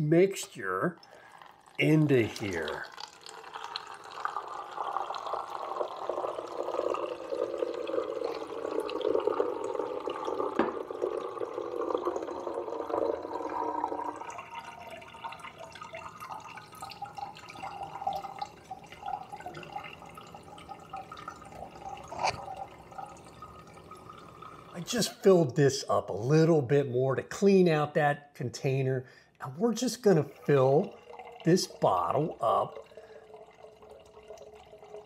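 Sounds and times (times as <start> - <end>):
liquid pouring through a funnel: 0.2 - 25.5, 29.4 - 35.0.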